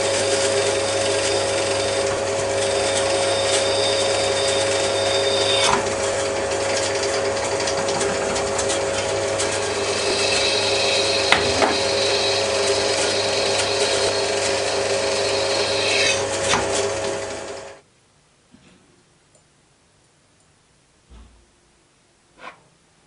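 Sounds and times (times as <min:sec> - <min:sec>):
drill press drilling metal: 0:00.0 - 0:17.8.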